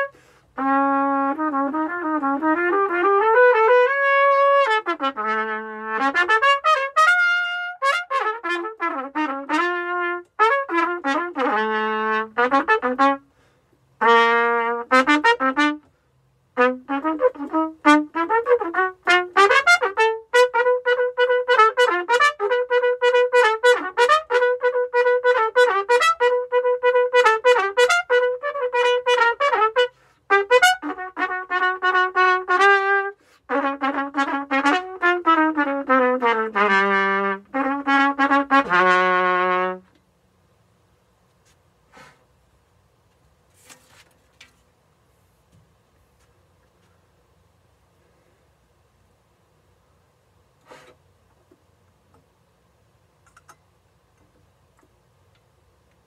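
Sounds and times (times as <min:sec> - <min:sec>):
solo trumpet: 0:00.0 - 0:40.0.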